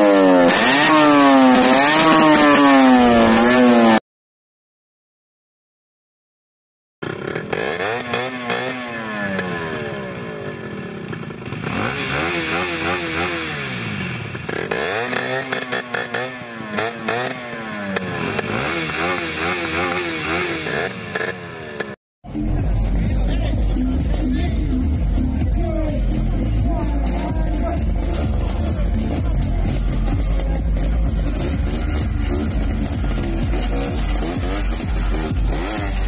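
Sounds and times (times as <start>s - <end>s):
two-stroke motorcycle engine revving: 0.0s - 4.0s, 7.0s - 36.0s.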